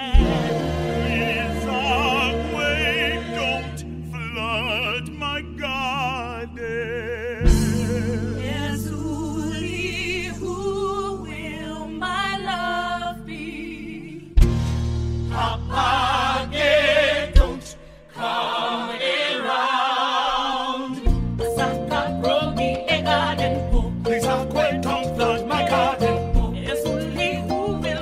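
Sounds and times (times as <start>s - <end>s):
woman singing with vibrato: 0.0s - 3.8s
musical accompaniment: 0.0s - 17.6s, 21.0s - 28.0s.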